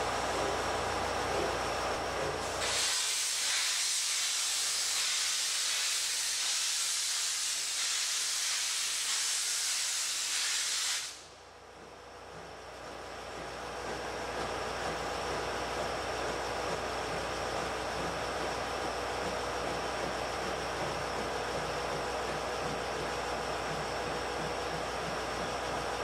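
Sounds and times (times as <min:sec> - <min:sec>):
steam locomotive hissing: 0:00.0 - 0:11.4.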